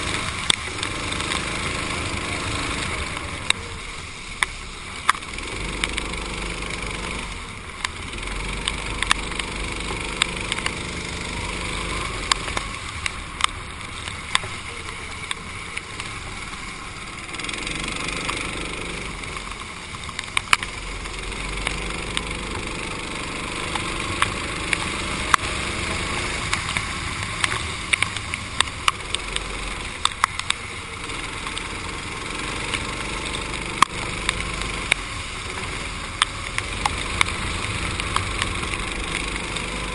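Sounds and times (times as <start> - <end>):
sharp clicks and ticks: 0.0 - 3.7, 4.3 - 39.9
go-kart engine accelerating: 0.0 - 39.9
wind and wet track spray hiss: 0.0 - 39.9.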